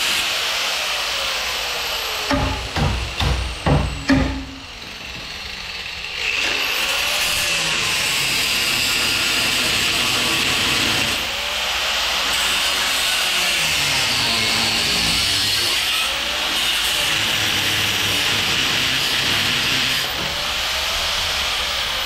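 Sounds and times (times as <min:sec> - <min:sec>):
power tool running against metal: 0:00.0 - 0:22.0
sharp knocks: 0:02.3 - 0:05.3.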